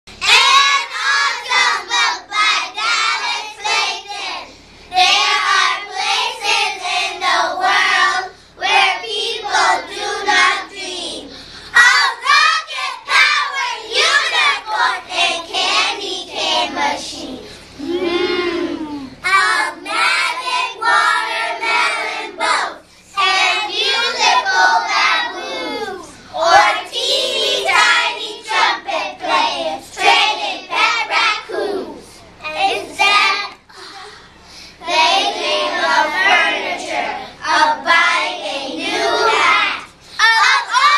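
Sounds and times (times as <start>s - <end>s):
children singing in unison: 11.8s - 32.0s, 34.9s - 40.9s.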